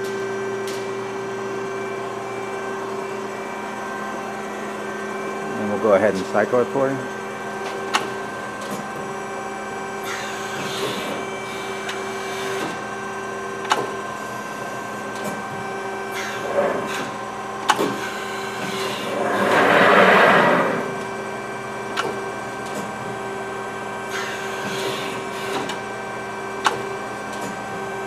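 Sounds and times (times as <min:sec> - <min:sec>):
hydraulic pump humming: 0:16.1 - 0:21.6
rushing noise: 0:18.9 - 0:21.3.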